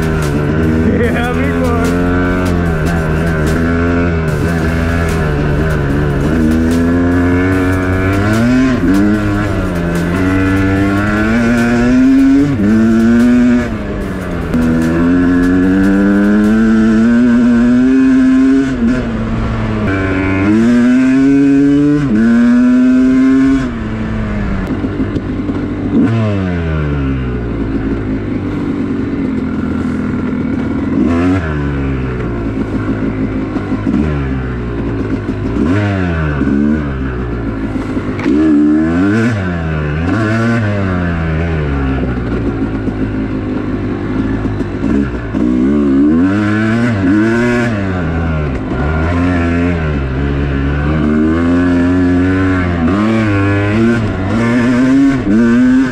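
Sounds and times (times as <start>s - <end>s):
dirt bike engine revving: 0.0s - 55.9s.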